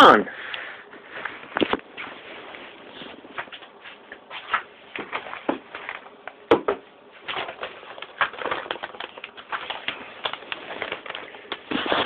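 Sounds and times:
papers rustling: 7.1s - 12.0s.

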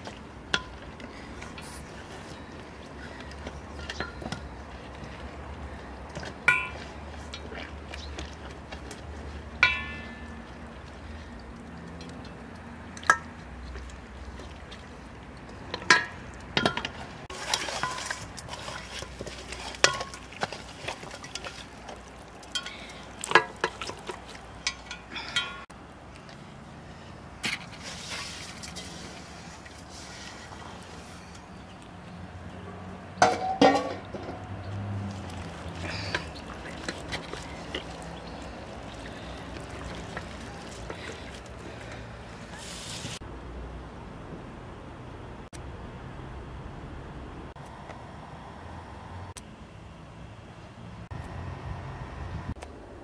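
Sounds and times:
marinade pouring: 0.0s - 25.1s, 34.9s - 43.2s
soft wet handling: 0.0s - 32.6s, 33.2s - 43.2s.

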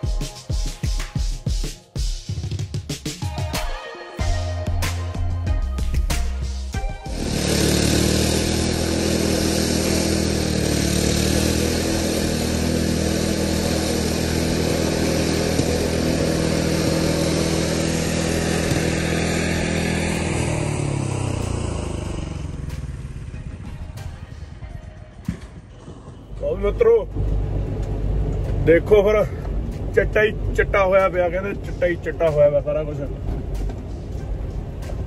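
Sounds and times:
snowblower engine running: 6.7s - 24.4s, 25.4s - 34.8s.

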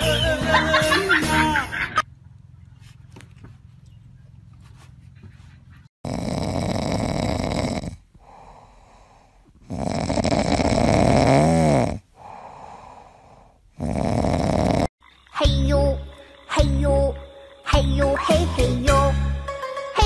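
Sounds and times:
dog breathing: 6.0s - 11.2s, 12.0s - 14.7s
dog snoring: 6.0s - 14.9s.

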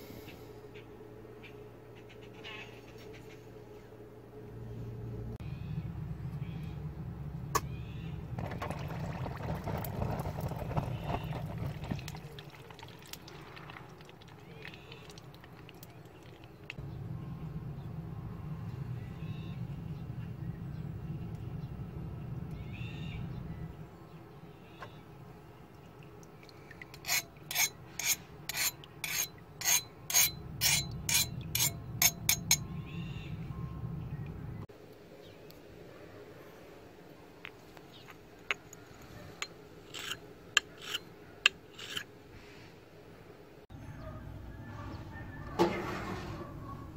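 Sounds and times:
low rumble: 4.2s - 12.4s, 16.7s - 24.0s
file scraping steel blade: 27.0s - 32.6s, 39.4s - 42.1s.

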